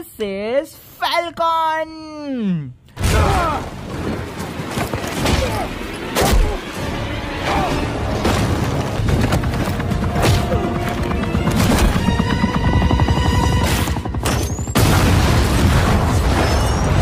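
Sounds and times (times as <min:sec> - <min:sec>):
action movie music: 0:03.6 - 0:17.0
booms and impacts: 0:14.2 - 0:17.0.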